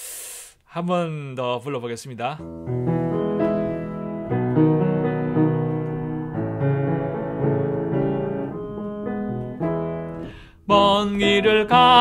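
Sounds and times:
slow piano chords: 0:02.4 - 0:12.0.

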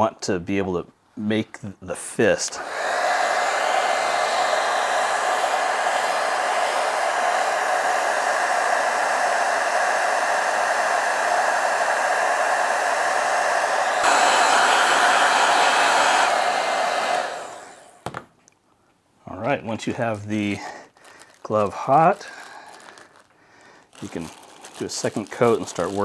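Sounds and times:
blow dryer running: 0:02.5 - 0:18.2, 0:21.7 - 0:23.0, 0:24.1 - 0:26.0.

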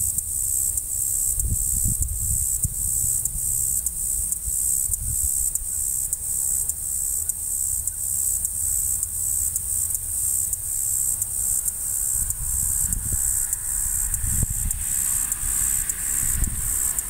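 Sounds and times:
insects chirping: 0:00.0 - 0:17.0
wind rumble on microphone: 0:01.1 - 0:05.6, 0:12.1 - 0:17.0.

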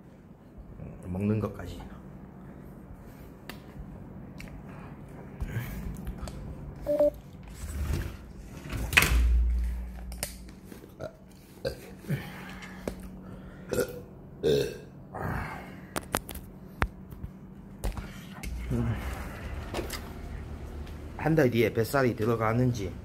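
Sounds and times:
person burping: 0:13.7 - 0:15.3.

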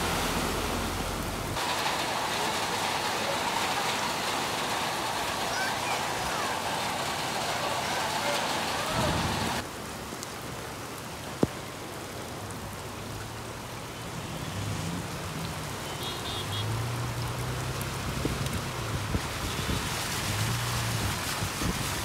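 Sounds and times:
rain on wet pavement: 0:00.0 - 0:22.0
traffic driving through water: 0:00.0 - 0:22.0.

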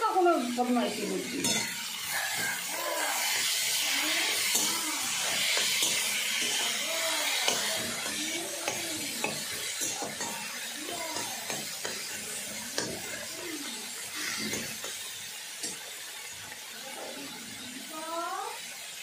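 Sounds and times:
food sizzling: 0:00.0 - 0:19.0
spatula scraping frying pan: 0:00.7 - 0:15.8.

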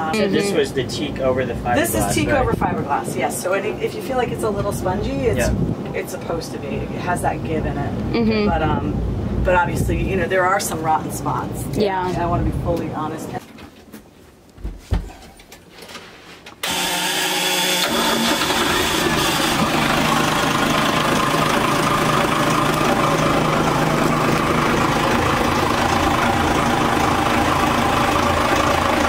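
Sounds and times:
diesel engine starting and idling: 0:16.6 - 0:29.0.

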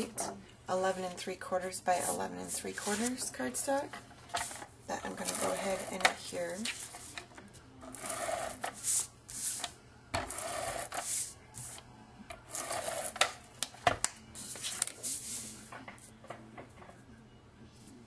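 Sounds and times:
cardstock rustling and sliding: 0:02.8 - 0:09.8
tape runner rasping on cardstock: 0:07.9 - 0:08.8.

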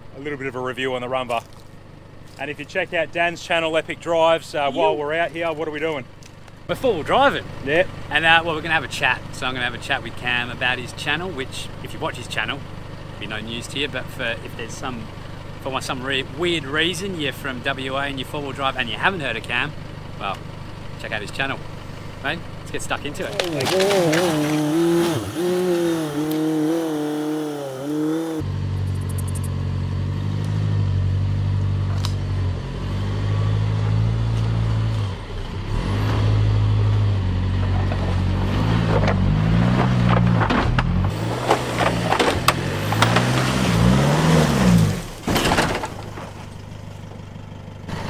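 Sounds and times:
diesel engine revving: 0:00.0 - 0:48.0
underbody knocking and scraping ground: 0:23.1 - 0:25.2, 0:37.6 - 0:47.2.

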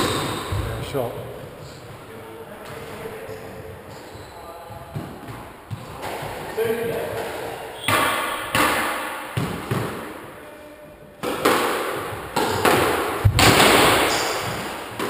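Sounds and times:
squash ball smacks echoing: 0:04.9 - 0:10.2, 0:11.2 - 0:15.0.

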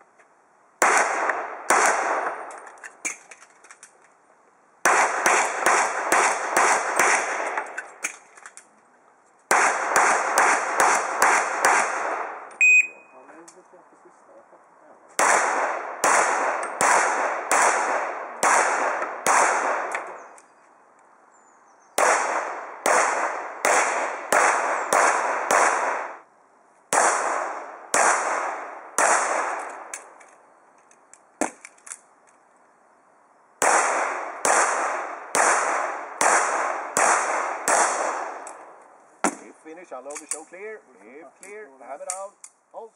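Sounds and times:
handgun shots with echo: 0:15.2 - 0:20.2.

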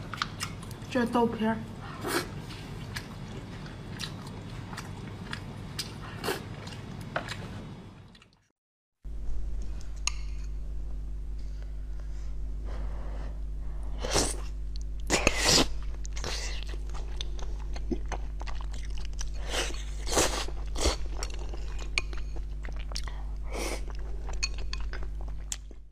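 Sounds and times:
wet chewing and mouth sounds: 0:00.0 - 0:00.9, 0:02.0 - 0:08.5, 0:14.3 - 0:25.9
steady low hum: 0:00.0 - 0:08.4, 0:09.0 - 0:25.9.

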